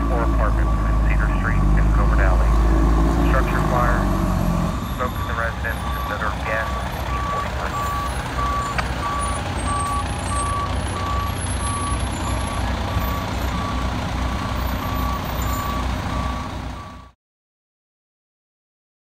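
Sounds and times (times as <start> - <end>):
backup alarm beeping: 0.0 - 3.8, 4.7 - 17.2
diesel engine rumbling: 0.0 - 17.2.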